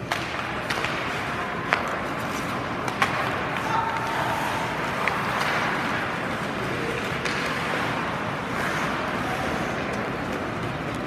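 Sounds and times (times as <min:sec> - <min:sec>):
hockey stick clicks: 0:00.0 - 0:09.0, 0:09.8 - 0:11.0
skates scraping ice: 0:00.0 - 0:11.0.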